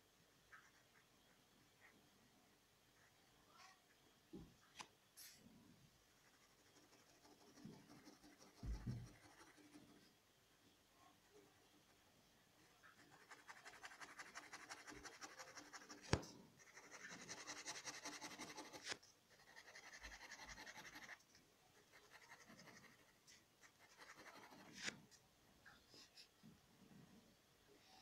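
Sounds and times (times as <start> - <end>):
pen scratching on paper: 6.2 - 10.0, 12.8 - 21.2, 21.9 - 25.0.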